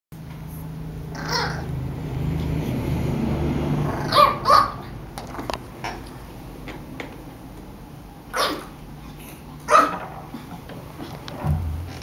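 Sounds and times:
puppy barking: 1.1s - 1.7s, 3.9s - 5.0s, 8.3s - 8.8s, 9.6s - 10.1s
puppy growling: 1.1s - 1.7s
puppy yip: 1.2s - 1.7s, 4.0s - 4.8s, 8.3s - 8.7s, 9.7s - 10.0s.

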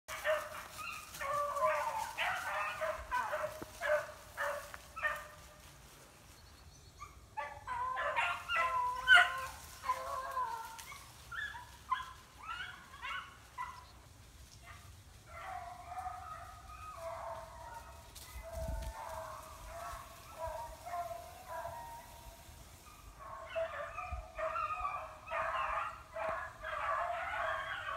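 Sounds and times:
dogs barking and yelping: 0.1s - 5.5s, 7.0s - 14.0s, 14.6s - 27.9s.

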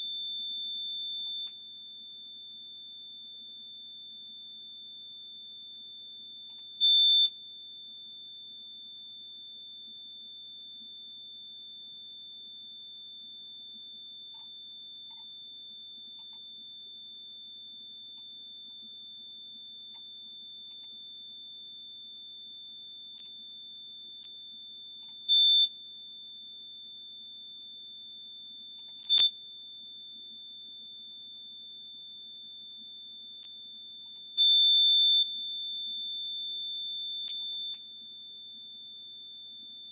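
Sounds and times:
high sine test tone: 0.0s - 39.9s.

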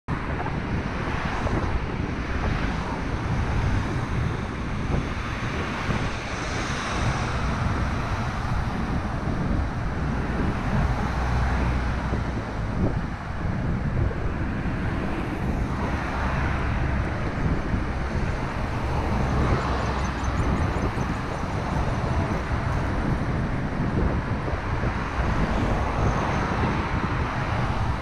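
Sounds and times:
road noise: 0.0s - 28.0s
passing traffic: 0.1s - 28.0s
wind buffeting microphone: 0.1s - 28.0s.

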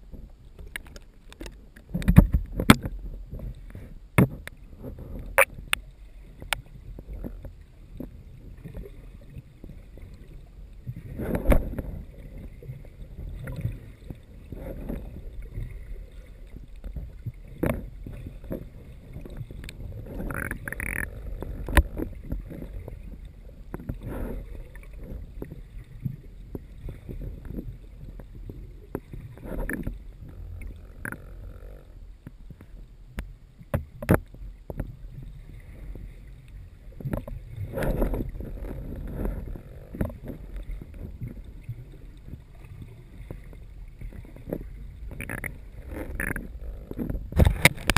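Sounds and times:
muffled underwater rumble: 0.0s - 47.9s
sharp clicks and knocks: 0.6s - 3.0s.

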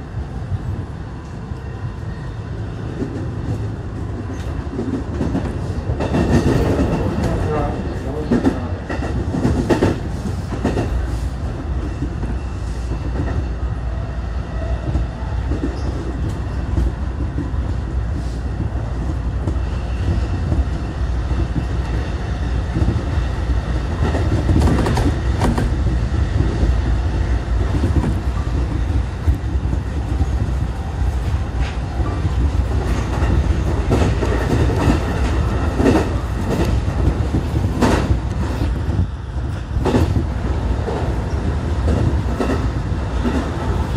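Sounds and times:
train wheels rumbling on rails: 0.0s - 43.9s
clacks over rail joints: 3.0s - 11.0s, 23.9s - 26.8s, 31.2s - 38.8s.

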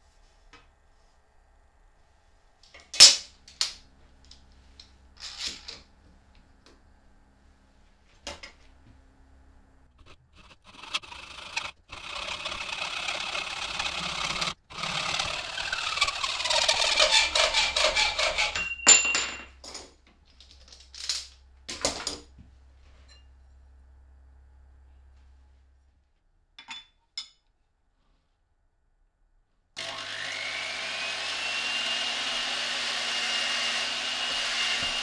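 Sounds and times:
hand saw rasping through metal: 10.0s - 18.7s.

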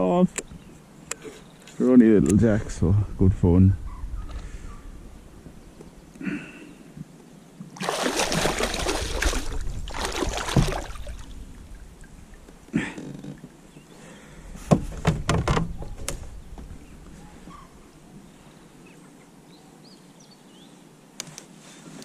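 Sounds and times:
fish splashing at surface: 7.8s - 11.3s.

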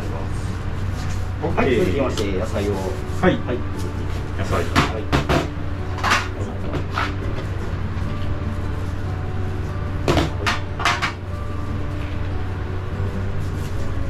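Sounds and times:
steady low hum: 0.0s - 14.0s
kitchenware knocking and clinking: 10.1s - 11.2s.

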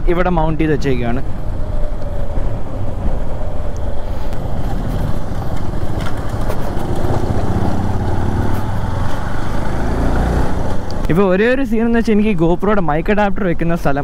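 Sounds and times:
motorcycle engine running: 4.4s - 11.0s.

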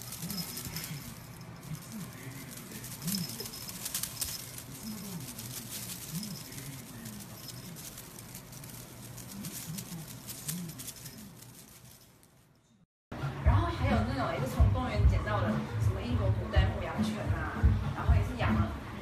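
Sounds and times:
toy taps and rustles: 0.0s - 12.5s.

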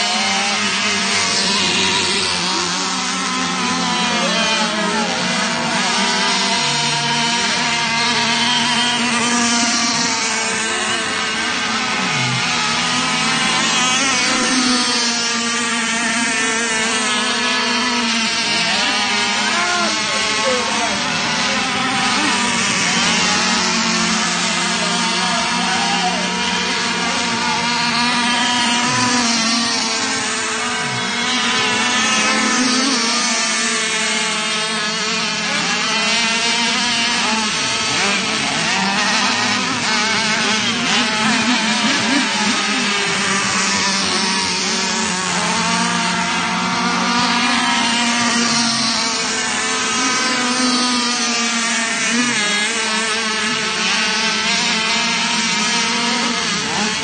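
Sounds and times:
small boat engines buzzing: 0.0s - 57.0s.

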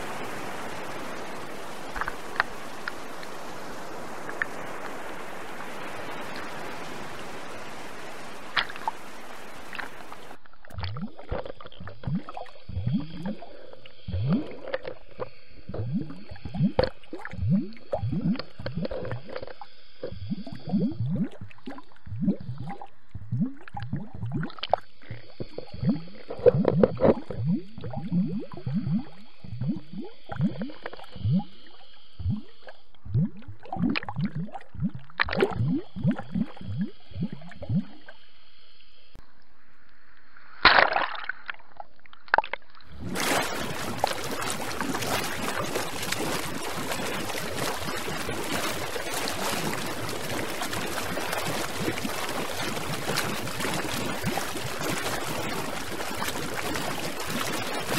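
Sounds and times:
open-air hiss: 0.0s - 10.4s, 35.7s - 41.0s, 43.0s - 57.9s
underwater gurgling and bubbling: 0.0s - 38.7s, 42.4s - 57.9s.

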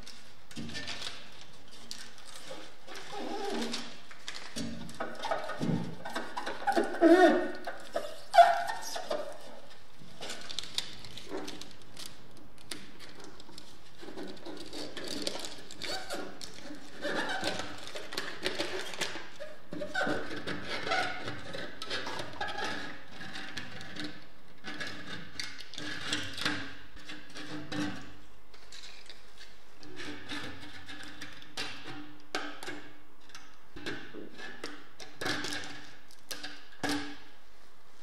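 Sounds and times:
foil tape crinkling: 0.0s - 5.8s, 6.4s - 16.7s
backing paper peeling: 0.0s - 12.8s.

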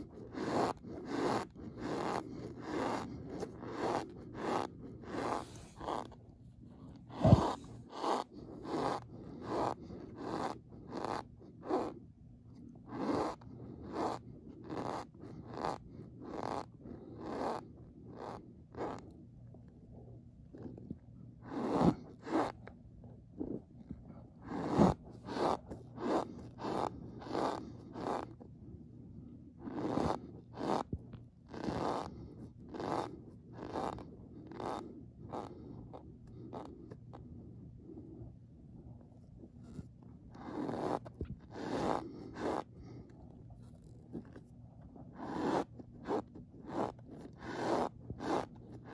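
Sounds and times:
cornstarch squeaking under a spoon: 0.0s - 6.1s, 7.1s - 12.0s, 12.9s - 19.0s, 29.6s - 30.9s, 40.4s - 42.7s, 43.7s - 48.9s.

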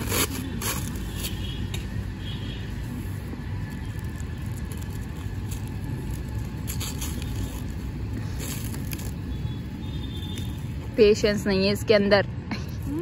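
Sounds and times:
steady low rumble: 0.0s - 13.0s
plastic wrap crinkling: 2.9s - 9.5s
packaging being torn open: 4.0s - 9.2s.

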